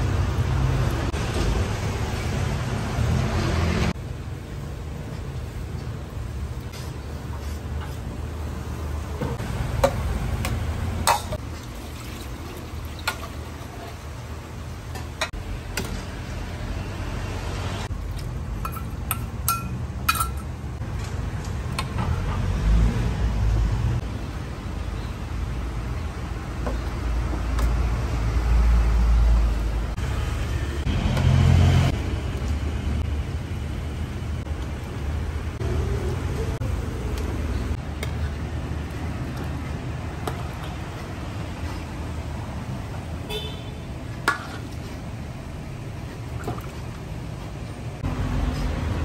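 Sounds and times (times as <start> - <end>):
street traffic rumbling: 0.0 - 49.0
ladle clinking against wok: 18.6 - 20.5.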